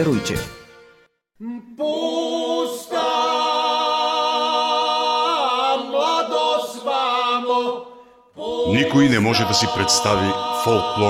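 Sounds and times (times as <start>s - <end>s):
men singing unaccompanied: 1.6s - 11.0s.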